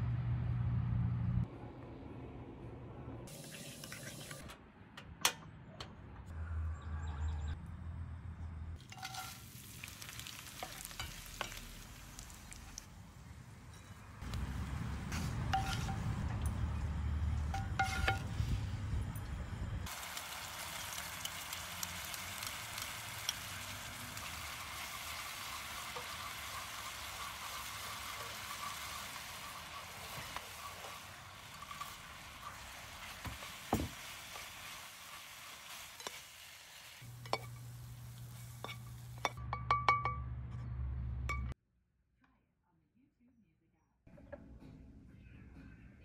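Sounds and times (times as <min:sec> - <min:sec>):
sauce sizzling in a frying pan: 0:08.9 - 0:12.8, 0:19.9 - 0:39.3
spatula scraping a pan: 0:15.1 - 0:16.1, 0:17.6 - 0:18.2, 0:25.4 - 0:36.2.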